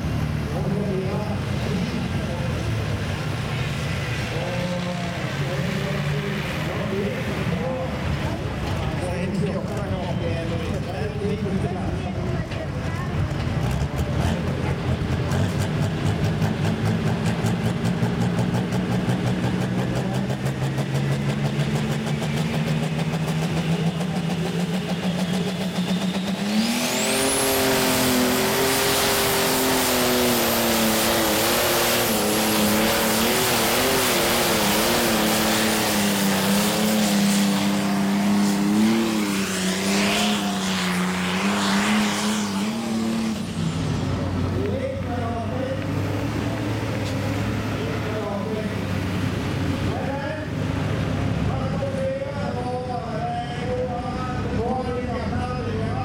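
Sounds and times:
diesel tractor engine under load: 0.0s - 56.0s
high whine: 22.2s - 48.9s.

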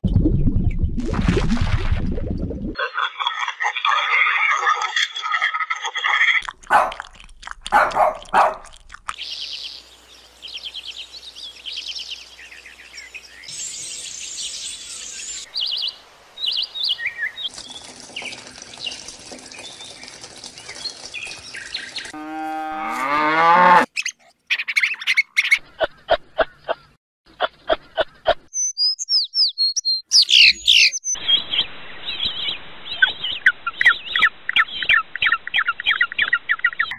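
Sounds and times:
bird chirps and twitters: 7.7s - 22.2s, 23.9s - 36.9s.

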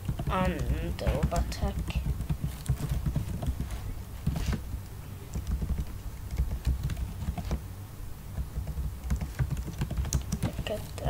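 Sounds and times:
computer keyboard keystrokes: 0.0s - 4.6s, 5.3s - 7.6s, 8.4s - 10.9s.

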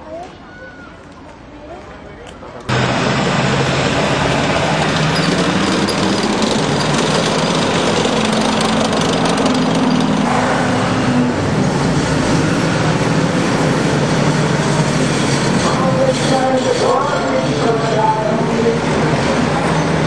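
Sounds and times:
tank engine running: 2.7s - 16.3s
clatter of tank tracks: 4.1s - 11.0s.

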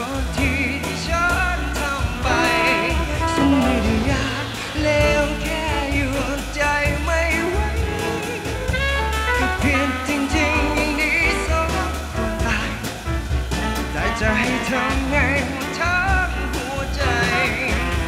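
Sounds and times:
man singing into a microphone: 0.0s - 8.8s, 9.4s - 13.0s, 13.9s - 18.0s
pop backing music with bass and beat: 0.0s - 18.0s.

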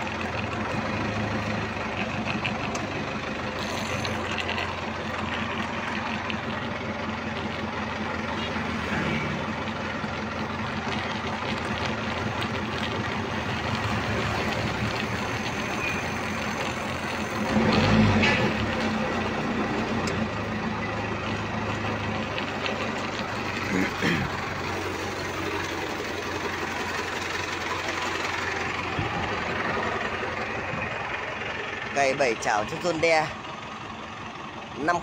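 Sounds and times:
forklift engine idling: 0.0s - 35.0s.

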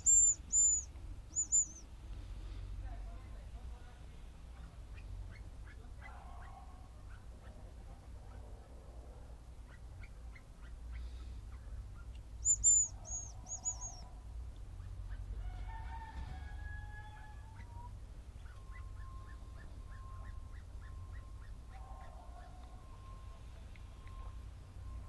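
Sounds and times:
bird high thin whistles: 0.0s - 1.8s, 12.4s - 14.0s.

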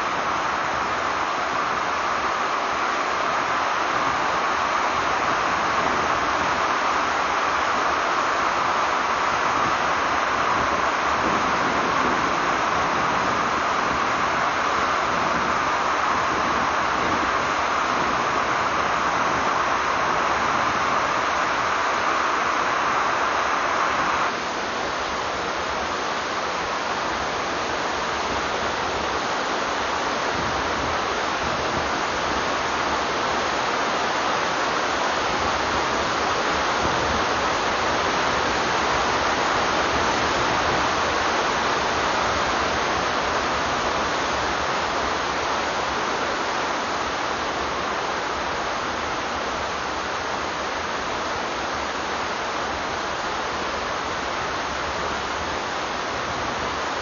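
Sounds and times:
river rapids rushing: 0.0s - 57.0s.

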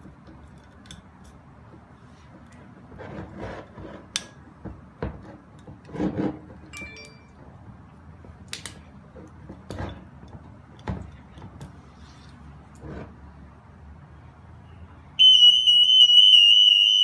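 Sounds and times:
glass bottle clink: 6.7s - 7.4s.

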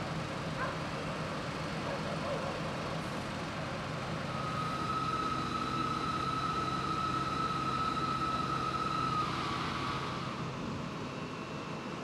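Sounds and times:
fire engine pump running: 0.0s - 12.0s
high-pitched pump whine: 1.0s - 12.0s.

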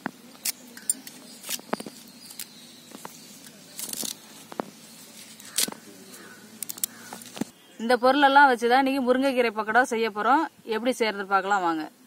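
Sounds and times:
leaves rustling and stems clicking: 0.0s - 7.5s.

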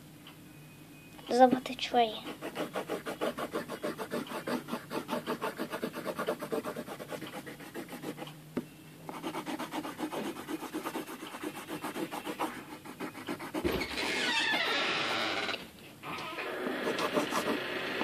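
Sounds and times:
pen scribbling on paper: 2.2s - 8.2s, 9.1s - 13.8s, 16.8s - 17.6s.

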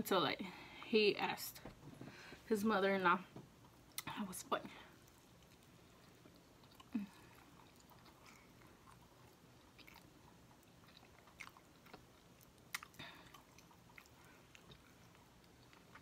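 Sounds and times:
person chewing: 4.9s - 16.0s
lip smacks: 5.0s - 16.0s.

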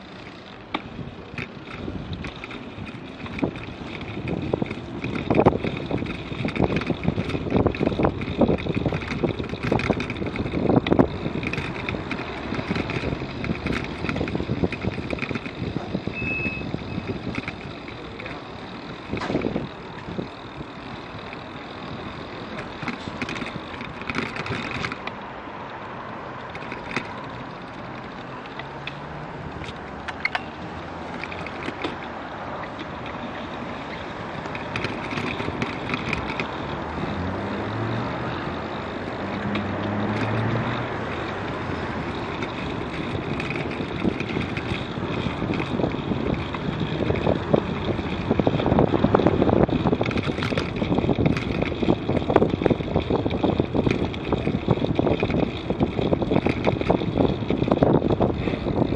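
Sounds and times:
road traffic: 0.0s - 58.9s
wind noise: 0.8s - 18.1s, 18.8s - 25.1s, 28.3s - 58.9s
bike knocking over bumps: 19.0s - 20.5s.

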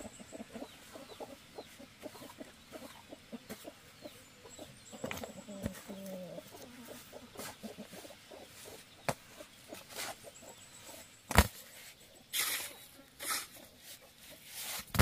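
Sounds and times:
shovel scraping wet mortar: 11.3s - 15.0s.

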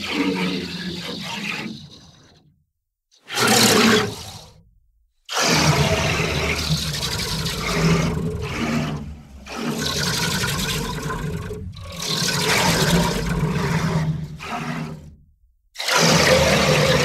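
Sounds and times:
monster roar: 5.4s - 15.1s, 15.8s - 17.0s.

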